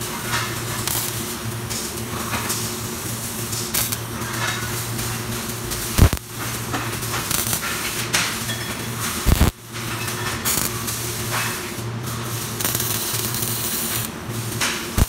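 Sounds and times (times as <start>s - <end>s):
steady low hum: 0.0s - 7.7s
welding arc crackle and hiss: 0.0s - 15.0s.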